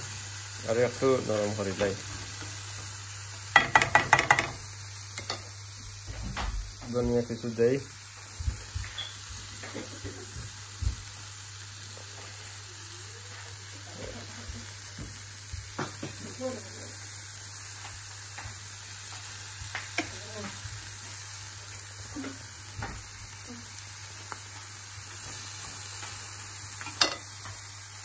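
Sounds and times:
food sizzling in frying pan: 0:00.0 - 0:28.0
knocks against pan: 0:03.6 - 0:04.6.

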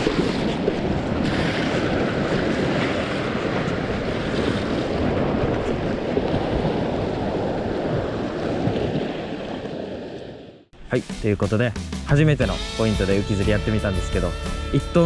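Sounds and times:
waves washing against rocks: 0:00.0 - 0:10.4
wind buffeting microphone: 0:00.0 - 0:10.6.

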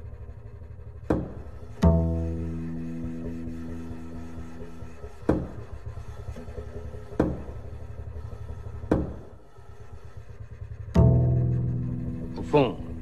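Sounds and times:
plucked double bass notes: 0:00.7 - 0:09.3, 0:10.2 - 0:13.0.

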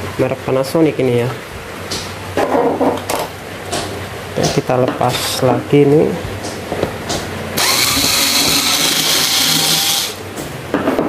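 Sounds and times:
electric screwdriver running: 0:07.6 - 0:10.2.

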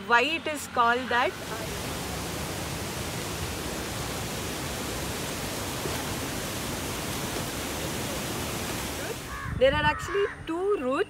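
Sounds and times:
waterfall rushing: 0:01.1 - 0:09.4.

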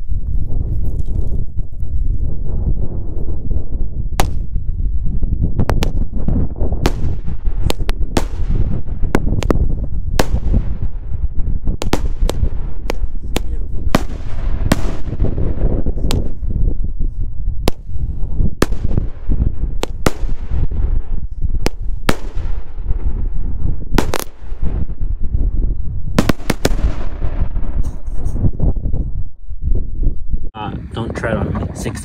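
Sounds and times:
low rumble: 0:00.0 - 0:32.0
firework bangs: 0:04.1 - 0:16.9, 0:17.5 - 0:28.7.

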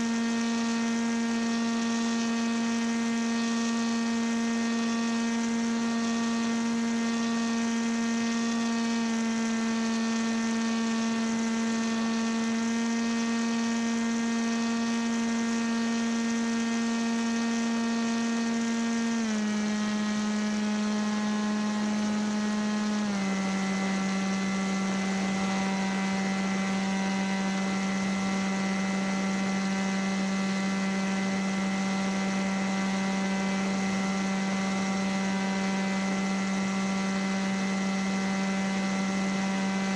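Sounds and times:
paramotor droning: 0:00.0 - 0:39.9.

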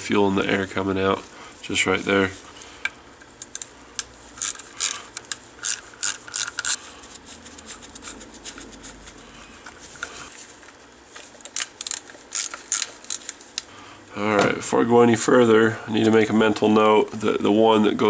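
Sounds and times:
hand ratchet clicking: 0:04.4 - 0:06.8.

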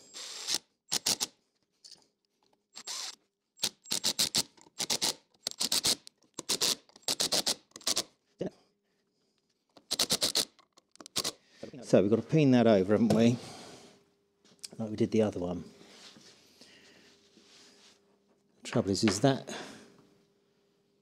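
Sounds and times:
impact driver driving screw: 0:00.0 - 0:01.4, 0:02.8 - 0:08.1, 0:09.8 - 0:11.4.

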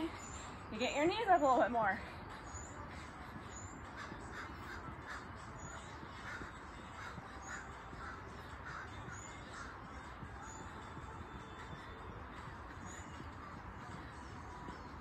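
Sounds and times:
faint crow cawing: 0:03.9 - 0:10.2.

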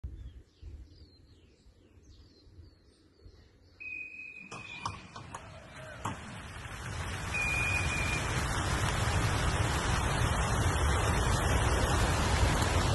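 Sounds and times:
small birds chirping: 0:00.0 - 0:04.9.

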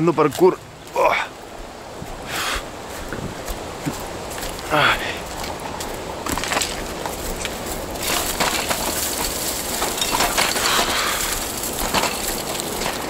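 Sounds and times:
footsteps on dry ground: 0:00.0 - 0:13.0
bicycle clicks and rattles: 0:06.2 - 0:13.0.

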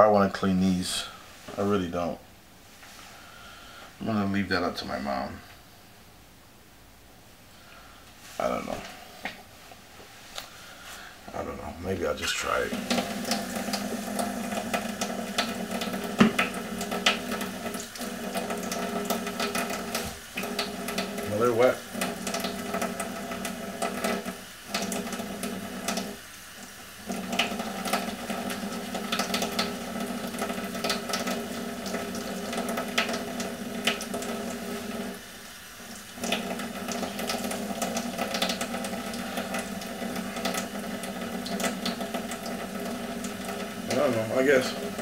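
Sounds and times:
tap running into sink: 0:12.7 - 0:21.3, 0:27.1 - 0:35.2.

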